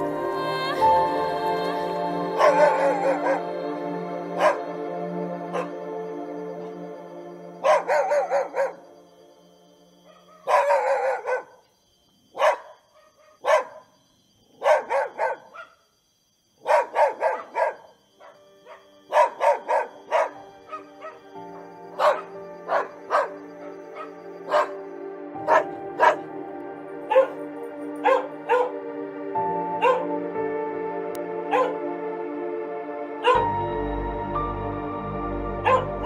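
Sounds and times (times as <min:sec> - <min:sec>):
soft background music: 0:00.0 - 0:11.5, 0:16.7 - 0:36.0
dogs barking: 0:02.4 - 0:03.5, 0:04.4 - 0:04.7, 0:05.5 - 0:05.8, 0:07.6 - 0:08.9, 0:10.1 - 0:11.7, 0:12.3 - 0:15.8, 0:16.6 - 0:26.4, 0:27.0 - 0:28.8, 0:29.8 - 0:30.2, 0:31.4 - 0:31.9, 0:33.2 - 0:33.5, 0:35.6 - 0:36.0.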